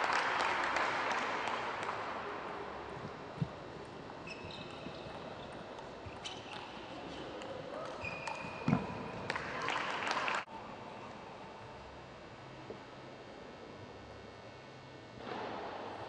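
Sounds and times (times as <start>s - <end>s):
crowd applause: 0.0s - 2.2s, 9.2s - 10.5s
shoes squeaking on floor: 4.2s - 9.0s.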